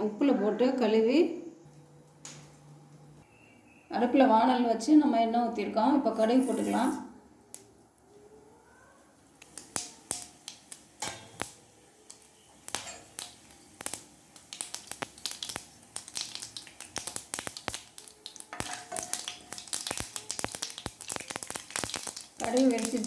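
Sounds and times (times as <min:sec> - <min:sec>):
mustard seeds popping in hot oil: 0:01.7 - 0:03.2, 0:09.3 - 0:23.0.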